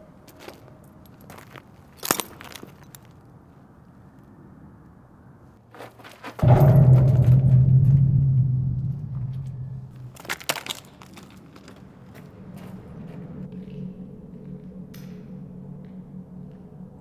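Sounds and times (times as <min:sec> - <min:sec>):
footsteps on gravel and glass: 0:01.2 - 0:03.1, 0:10.2 - 0:12.8
deep droning boom: 0:06.4 - 0:10.8, 0:11.9 - 0:17.0
faint low drone: 0:06.4 - 0:10.8, 0:11.8 - 0:17.0.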